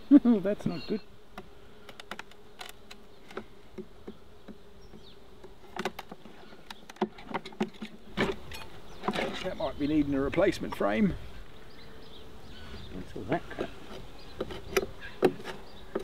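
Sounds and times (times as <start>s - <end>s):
honey bees buzzing: 0.0s - 16.0s
hive tool prying wooden frames: 1.2s - 9.6s, 13.5s - 16.0s.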